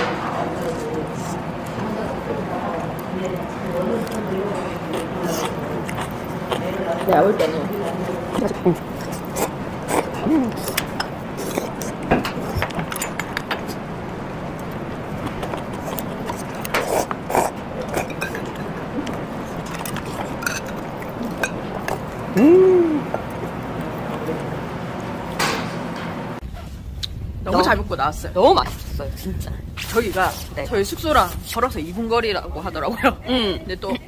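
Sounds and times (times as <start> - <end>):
utensils clinking against bowls: 2.8 - 13.9, 14.6 - 22.4.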